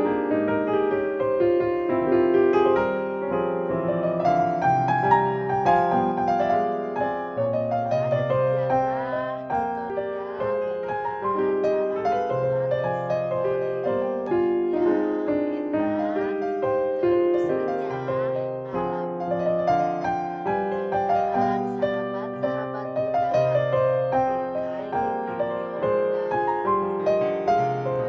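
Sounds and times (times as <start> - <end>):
piano music: 0.0 - 28.0.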